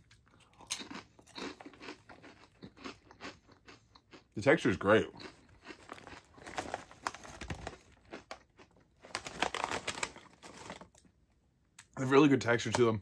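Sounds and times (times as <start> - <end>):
chip bag crinkling: 4.7 - 11.1.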